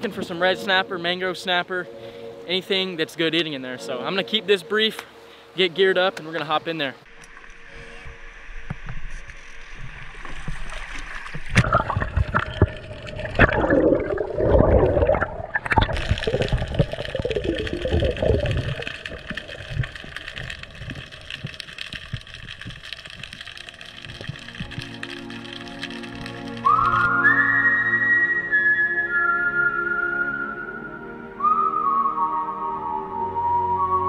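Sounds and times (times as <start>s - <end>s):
underwater bubbling and gurgling: 7.1s - 27.1s.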